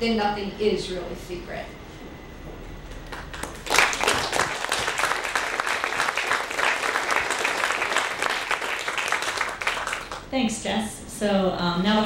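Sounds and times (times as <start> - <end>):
audience applause: 3.1 - 10.2.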